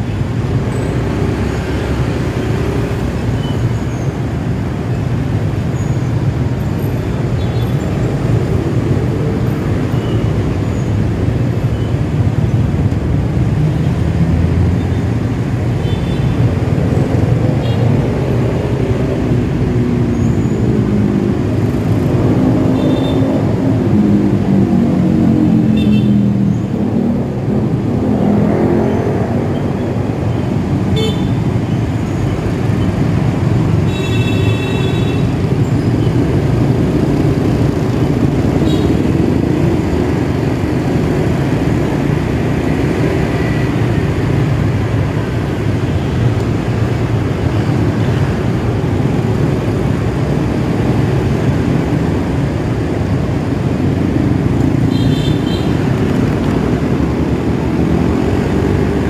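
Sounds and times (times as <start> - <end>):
motorcycle engine and road noise: 0.0 - 59.0.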